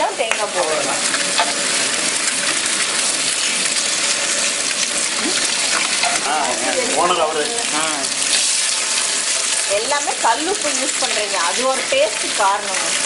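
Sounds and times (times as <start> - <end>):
wet grinder grinding: 0.4 - 13.0.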